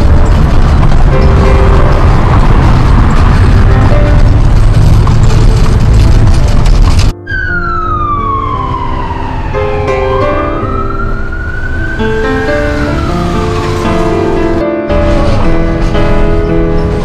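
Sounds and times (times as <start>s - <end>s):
background music: 0.0s - 17.0s
loud road noise: 0.0s - 17.0s
emergency siren wailing: 7.2s - 14.6s.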